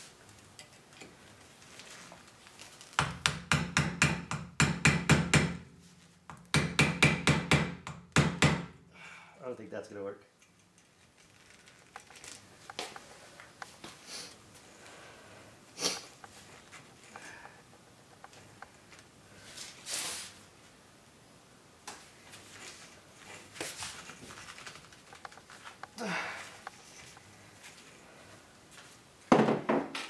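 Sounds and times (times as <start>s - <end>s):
short breaths: 8.9s - 9.4s, 26.0s - 26.6s.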